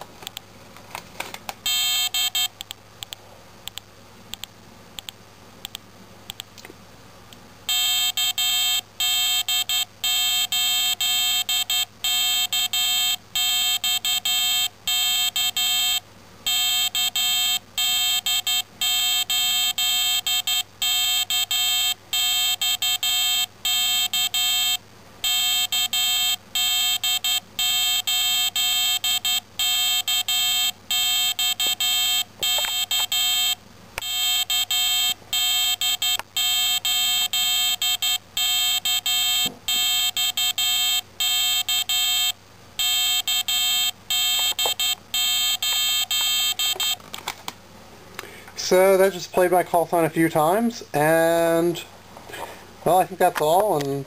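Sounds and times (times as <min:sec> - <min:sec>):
buzzy morse code beeps: 0:01.6 - 0:02.6, 0:07.7 - 0:47.0.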